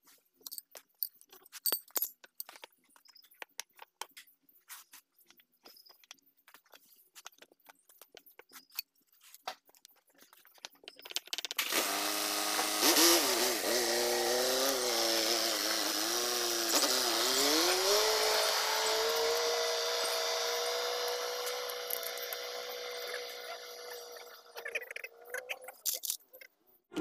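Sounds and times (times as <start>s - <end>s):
motor running: 11.6s - 25.0s
metal parts clicking: 25.7s - 27.0s.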